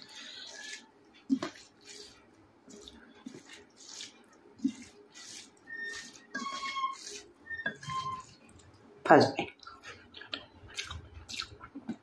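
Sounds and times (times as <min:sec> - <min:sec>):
wet squishing and smacking eating: 0:00.0 - 0:07.4, 0:08.2 - 0:12.0
faint squeaky tones: 0:05.7 - 0:08.4.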